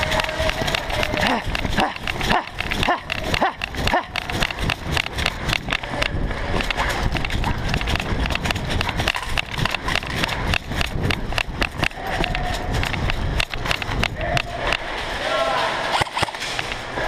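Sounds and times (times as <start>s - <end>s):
running footsteps on concrete: 0.0s - 15.8s
low rumble of movement: 0.0s - 17.0s.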